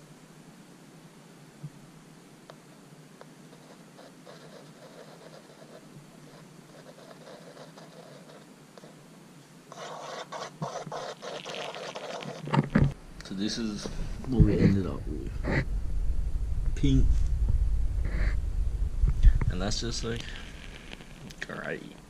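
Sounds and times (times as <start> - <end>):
screw scraping in plastic cup: 9.8 - 12.8.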